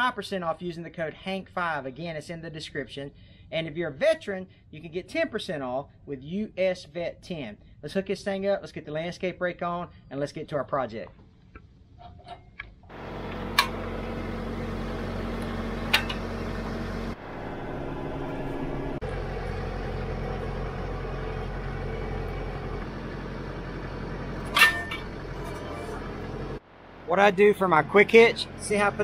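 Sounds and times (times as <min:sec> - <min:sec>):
tractor diesel engine idling: 0:12.9 - 0:29.0.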